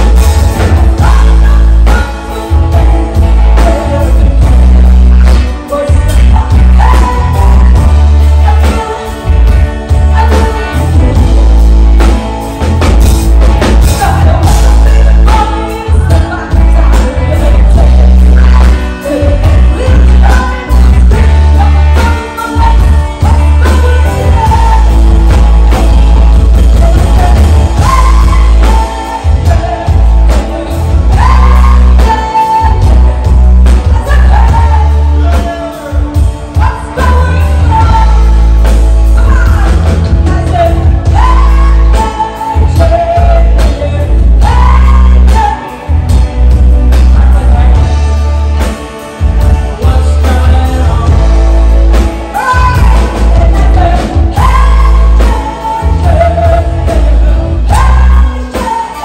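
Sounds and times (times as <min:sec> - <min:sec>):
woman singing: 0:00.0 - 0:12.3, 0:13.4 - 0:59.0
bass guitar: 0:00.0 - 0:59.0
drums: 0:00.0 - 0:59.0
electric guitars: 0:00.0 - 0:59.0.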